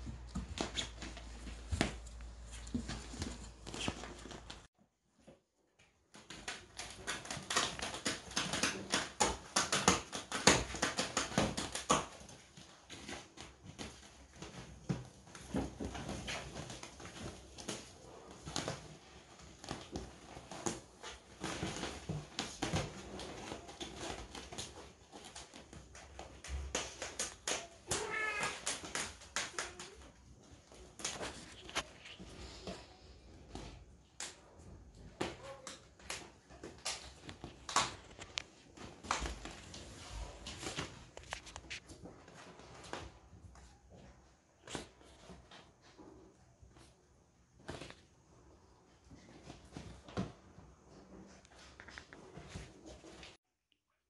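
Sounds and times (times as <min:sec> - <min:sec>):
rustling and claw scratching: 0:00.0 - 0:04.7, 0:06.1 - 0:53.4
cat meowing: 0:27.9 - 0:28.7.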